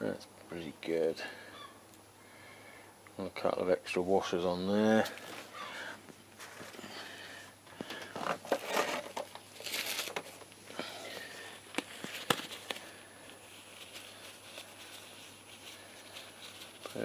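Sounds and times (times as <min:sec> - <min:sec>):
gloved hands crinkling and rustling: 0:07.7 - 0:17.0.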